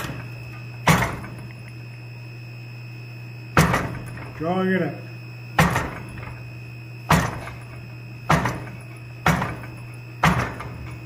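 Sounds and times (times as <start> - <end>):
press striking hot steel: 0.0 - 1.6, 3.6 - 4.4, 5.6 - 6.4, 7.1 - 11.0
steady hum: 0.0 - 11.0.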